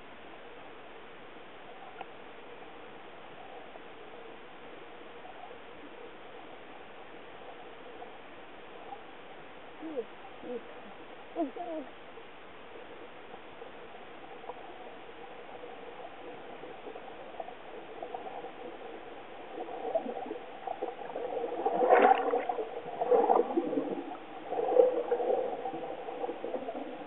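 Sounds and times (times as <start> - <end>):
muffled underwater sound: 0.0 - 27.0
air bubbles gurgling: 16.0 - 27.0.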